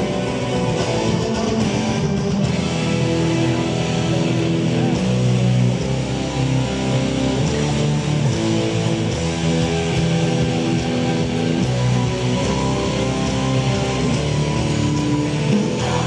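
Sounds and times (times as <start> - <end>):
guitar music: 0.0 - 16.0.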